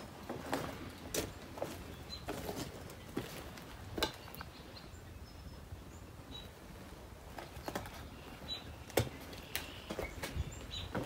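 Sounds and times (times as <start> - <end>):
footsteps crunching on plaster: 0.2 - 3.7
small birds chirping: 0.7 - 11.0.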